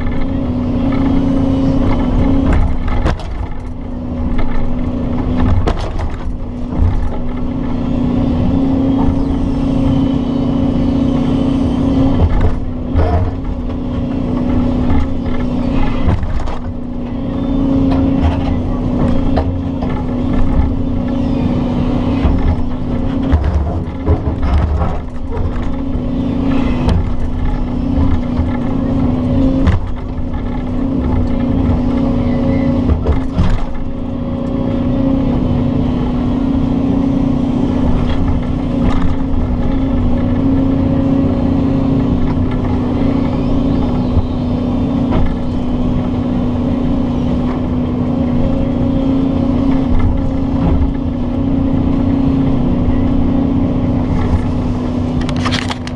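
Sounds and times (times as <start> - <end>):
excavator diesel engine running: 0.0 - 55.9.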